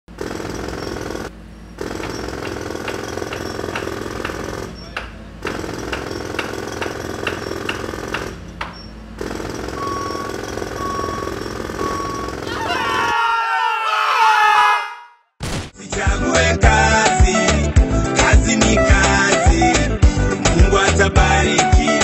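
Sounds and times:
jackhammer hammering: 0:00.1 - 0:13.1
short beeps: 0:09.7 - 0:12.4.

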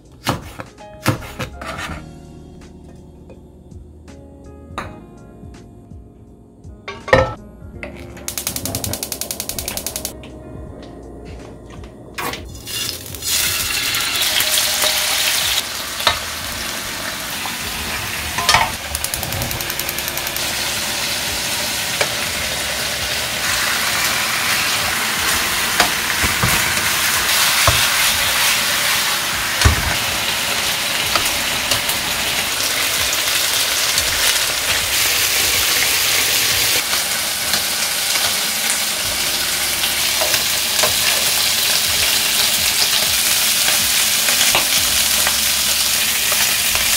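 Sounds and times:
metal tongs clicking on pan: 0:08.3 - 0:10.1
pork sizzling in frying pan: 0:08.3 - 0:10.2, 0:12.6 - 0:46.9.

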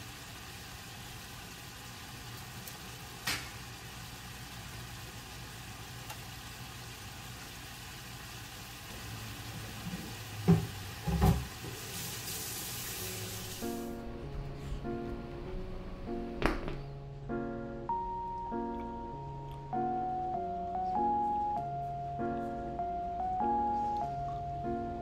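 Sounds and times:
pot boiling: 0:00.0 - 0:13.9
vegetables sizzling in frying pan: 0:00.0 - 0:13.9.

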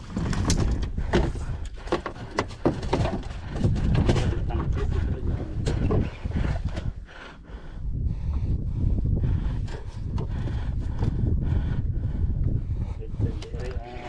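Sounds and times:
steady low rumble: 0:03.0 - 0:14.0.

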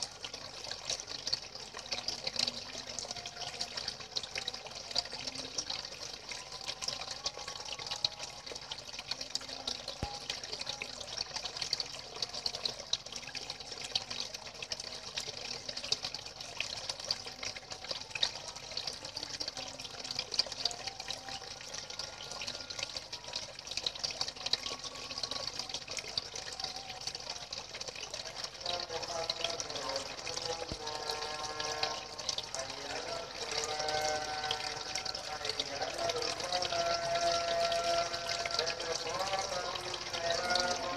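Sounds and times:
water jets splashing into pond: 0:00.0 - 0:40.9.

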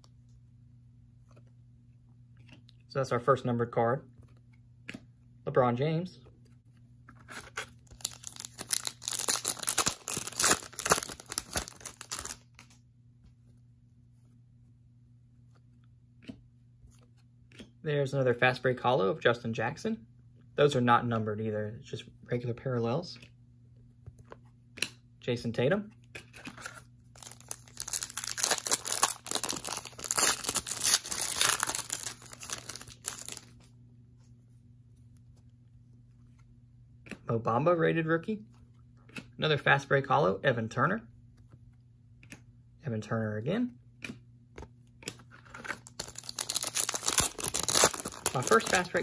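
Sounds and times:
foil wrapper tearing and crinkling: 0:07.8 - 0:12.6, 0:27.1 - 0:33.5, 0:45.6 - 0:49.0.

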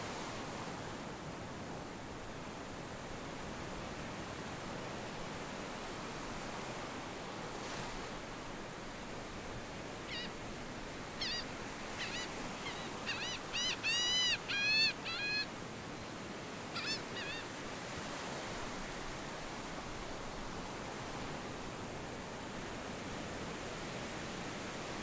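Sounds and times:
high bird calls: 0:10.1 - 0:10.3, 0:11.2 - 0:15.5, 0:16.8 - 0:17.5.

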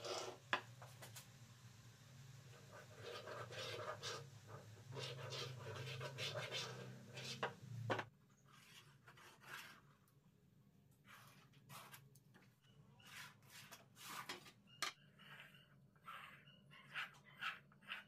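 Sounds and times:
pencil scratching on plywood: 0:02.7 - 0:07.6, 0:08.4 - 0:10.0, 0:11.0 - 0:12.1, 0:13.0 - 0:18.0.

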